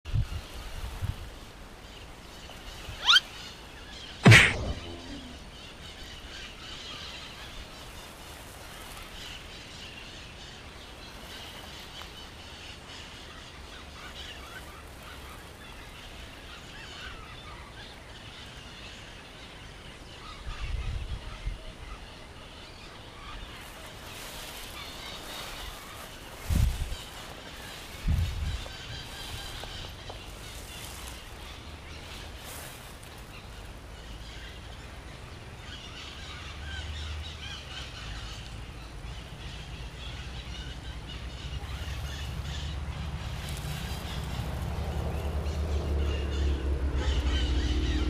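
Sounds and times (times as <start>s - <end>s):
birds calling: 1.8s - 48.0s
low bumps on microphone: 4.2s - 5.4s
short rising call: 4.2s - 5.5s
loud sharp sound falling in pitch: 4.2s - 5.6s.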